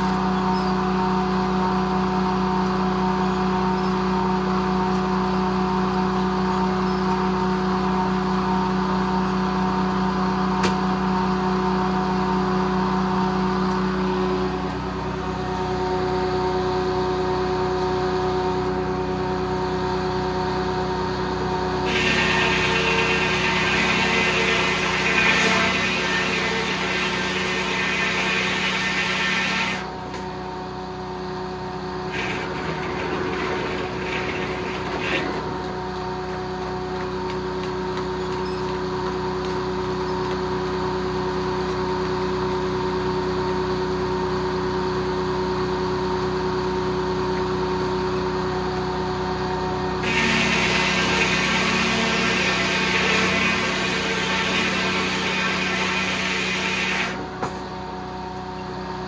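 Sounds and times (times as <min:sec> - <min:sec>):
sawmill humming: 0:00.0 - 0:59.0
saw cutting wood: 0:21.8 - 0:29.9, 0:32.1 - 0:35.8, 0:50.0 - 0:57.4.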